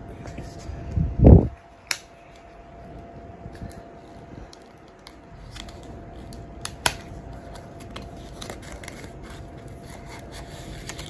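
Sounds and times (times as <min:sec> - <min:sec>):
paper rustling and scratching: 0:03.7 - 0:11.0.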